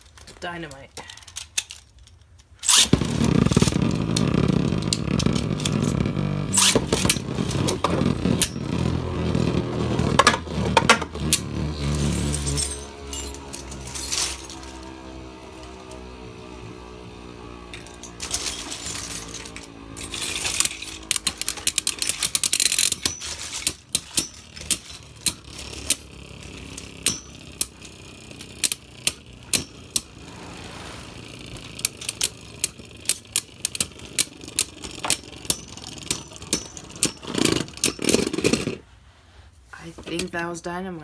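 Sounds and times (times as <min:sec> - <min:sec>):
spinning tops whirring: 0:02.6 - 0:38.8
spinning tops clacking together: 0:10.2 - 0:16.2, 0:16.9 - 0:30.2.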